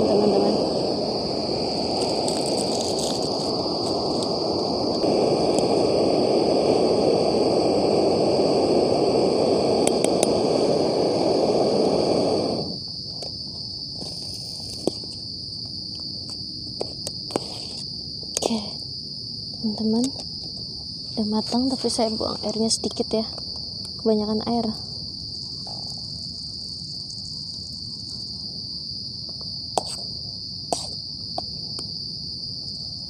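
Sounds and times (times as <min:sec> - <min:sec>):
gas stove burner hissing: 0:00.0 - 0:19.0
crickets chirping: 0:00.0 - 0:33.0.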